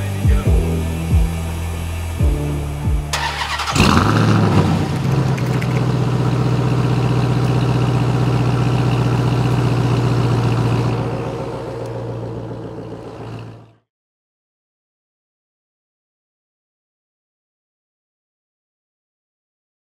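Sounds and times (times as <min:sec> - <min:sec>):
car engine starting and idling: 0:00.0 - 0:13.8.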